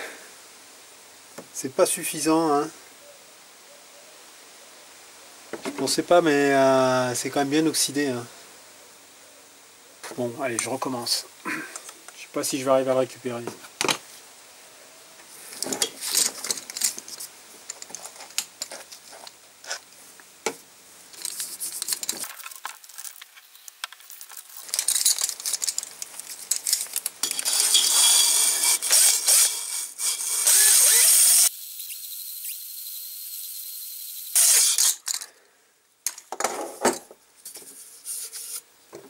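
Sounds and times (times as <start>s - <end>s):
metal clinks and rattles: 15.6s - 19.0s, 24.1s - 28.3s
drill spinning hone with scraping hiss: 27.2s - 35.1s.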